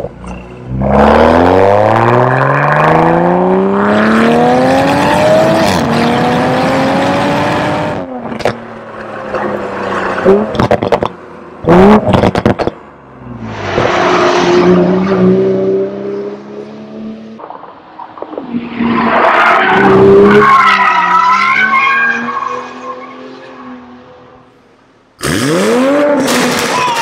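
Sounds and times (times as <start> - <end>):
car accelerating hard: 0.7 - 8.6, 25.2 - 26.7.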